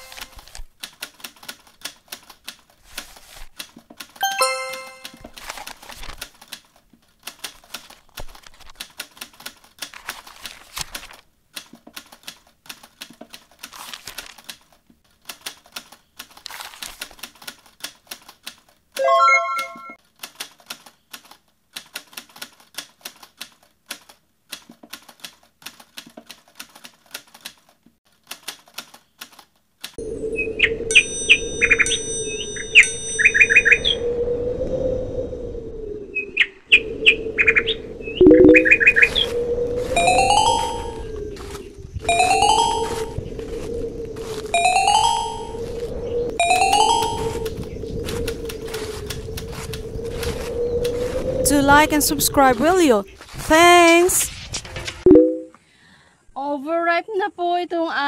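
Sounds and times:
typewriter keys clicking: 0:00.0 - 0:04.2, 0:04.8 - 0:18.8, 0:20.0 - 0:30.0
typewriter bell ding: 0:04.2 - 0:05.2
birds chirping and whistling: 0:30.2 - 0:34.1, 0:36.2 - 0:39.4.

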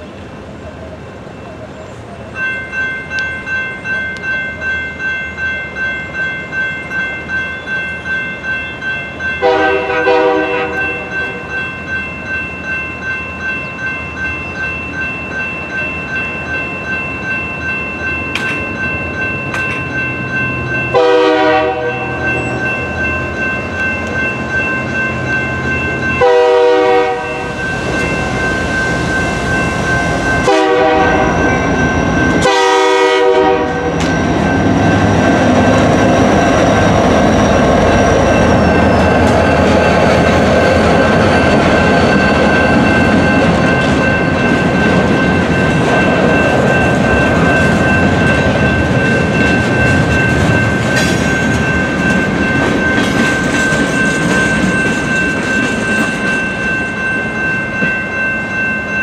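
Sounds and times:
electronic crossing bells ringing: 0:02.3 - 0:59.0
locomotive horn blasts: 0:09.4 - 0:11.4, 0:20.9 - 0:22.3, 0:26.2 - 0:27.5, 0:30.4 - 0:31.4, 0:32.4 - 0:34.0
freight cars rumbling and clattering: 0:33.6 - 0:58.0.

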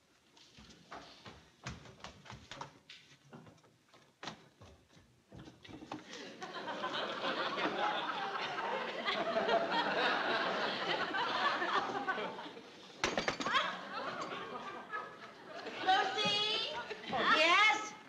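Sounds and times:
audience laughing: 0:06.1 - 0:17.3.

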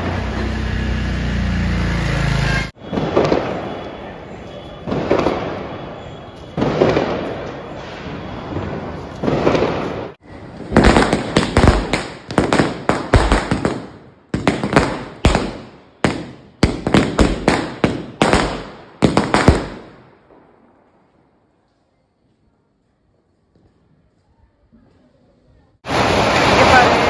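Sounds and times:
firecrackers bursting: 0:02.8 - 0:21.3, 0:25.8 - 0:27.0.

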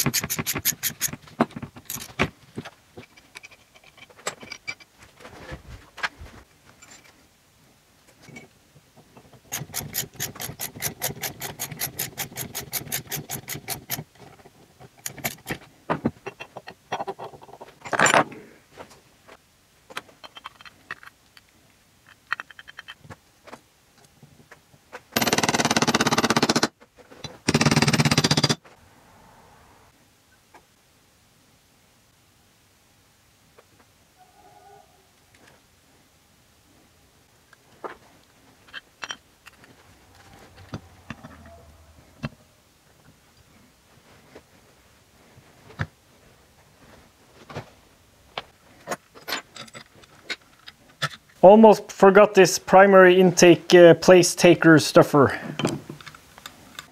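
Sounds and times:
ratchet wrench clicking fast: 0:09.5 - 0:14.0.

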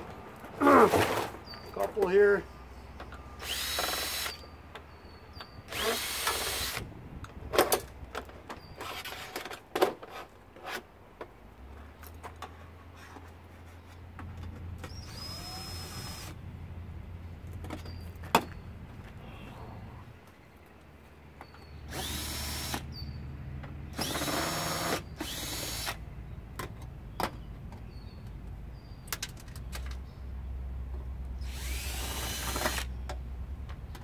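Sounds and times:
drill backing out screws: 0:03.4 - 0:04.4, 0:05.7 - 0:06.8, 0:24.0 - 0:26.0, 0:31.4 - 0:32.9.

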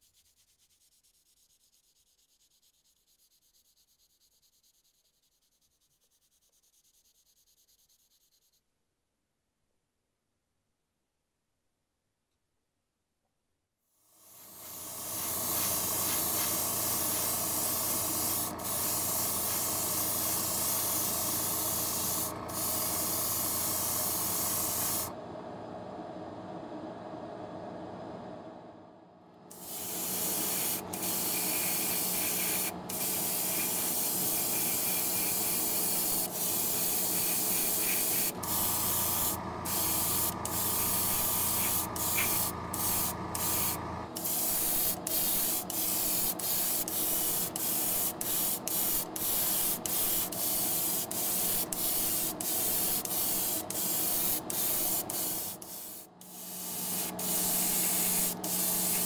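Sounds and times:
airbrush spraying hiss: 0:14.2 - 0:25.1, 0:29.5 - 0:59.0
steady low hum: 0:14.3 - 0:46.4, 0:50.8 - 0:59.0.

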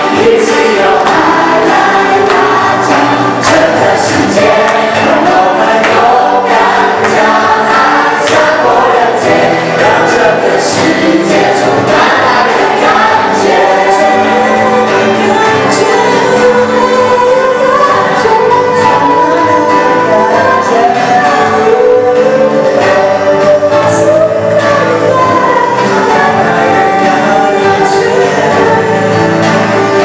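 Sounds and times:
group singing praise song: 0:00.0 - 0:30.0.

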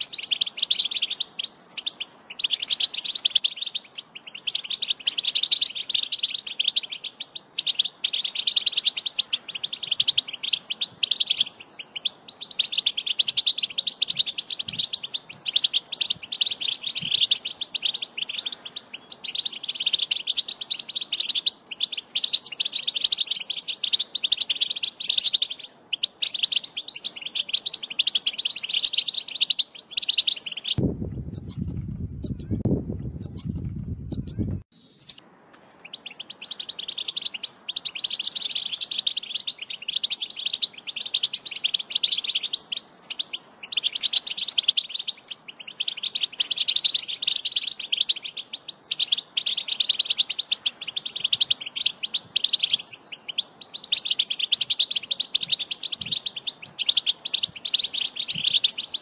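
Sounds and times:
finch twittering song: 0:00.0 - 0:59.0
low rumble: 0:30.8 - 0:34.6.

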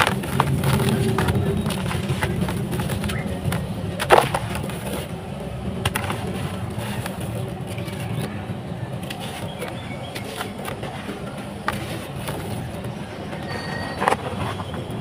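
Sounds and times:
sand-cement chunks crumbling: 0:00.0 - 0:05.1.

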